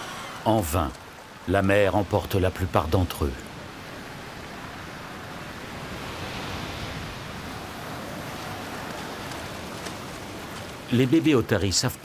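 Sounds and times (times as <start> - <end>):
surf breaking on shore: 2.5 - 11.5.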